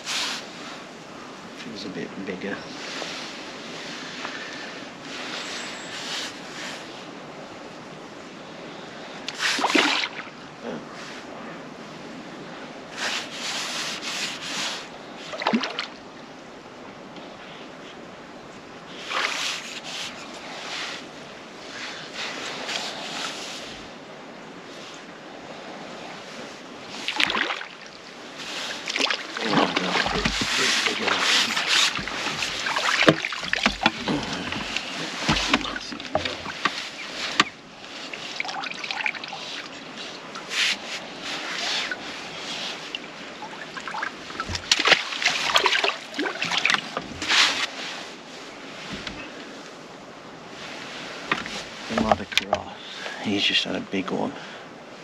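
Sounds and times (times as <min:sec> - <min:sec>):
water splashing: 0:09.3 - 0:10.4, 0:13.0 - 0:16.0, 0:18.9 - 0:21.1, 0:26.8 - 0:47.8
net rustling and knocking: 0:29.5 - 0:37.5.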